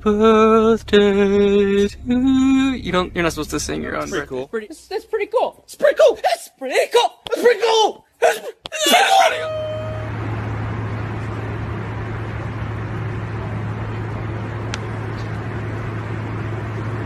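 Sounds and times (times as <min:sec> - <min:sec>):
airliner cabin hiss and hum: 0:09.0 - 0:17.0.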